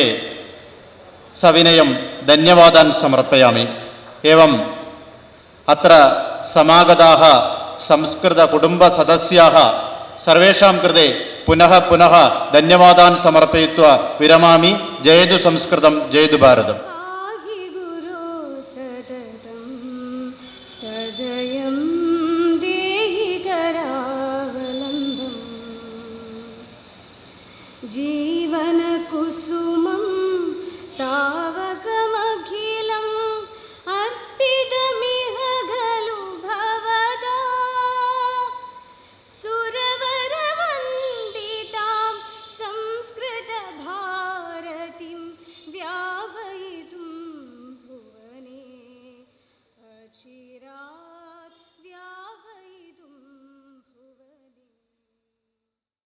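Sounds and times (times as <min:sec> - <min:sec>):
woman singing slow song: 0:16.8 - 0:26.8, 0:27.7 - 0:54.8.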